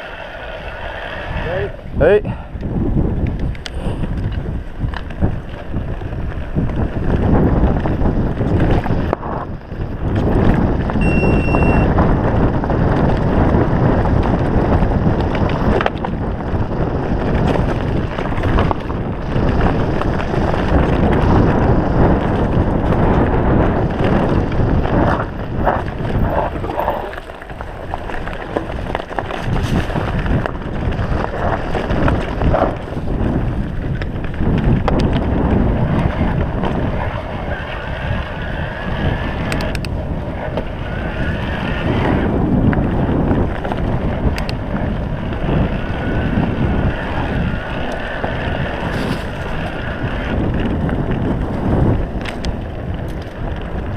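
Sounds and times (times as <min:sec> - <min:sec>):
bike rattling over rough ground: 0:00.0 - 0:53.9
wind on microphone: 0:00.0 - 0:53.9
brief high tone: 0:11.0 - 0:11.9.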